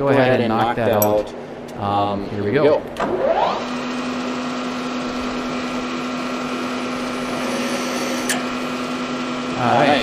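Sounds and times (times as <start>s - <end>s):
milling machine spindle humming: 3.5s - 10.0s
drill bit drilling metal: 5.3s - 9.6s.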